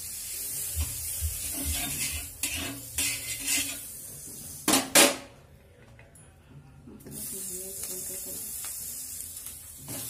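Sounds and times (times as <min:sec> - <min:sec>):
butter sizzling on a griddle: 0:00.0 - 0:04.8, 0:07.1 - 0:10.0
spatula striking a griddle: 0:00.8 - 0:03.8
metal spatula scraping a pan: 0:01.4 - 0:04.0.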